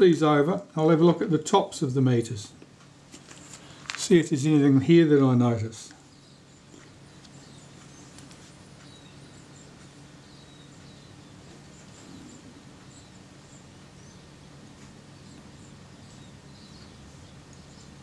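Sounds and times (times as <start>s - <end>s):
steady low hum: 0.0s - 18.0s
faint bird chirps: 6.0s - 18.0s.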